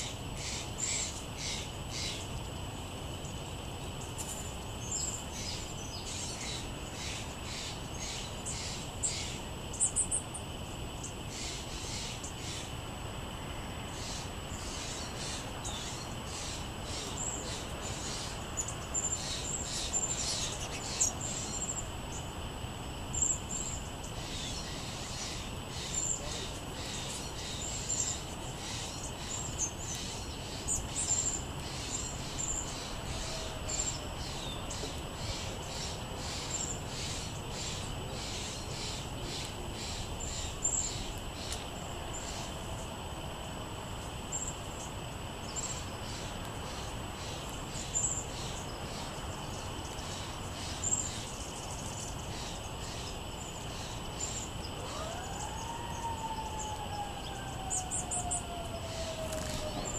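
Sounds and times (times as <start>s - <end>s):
background hiss: 0.0s - 59.9s
songbirds chipping: 0.0s - 59.9s
siren: 54.8s - 59.9s.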